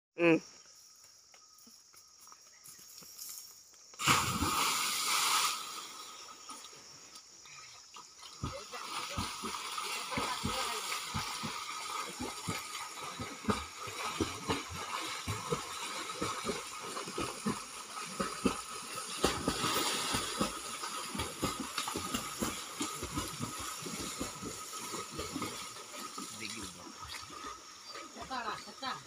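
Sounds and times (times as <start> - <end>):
hiss of churned water: 4.0 - 7.0, 16.8 - 21.2
swimmers splashing: 8.2 - 29.0.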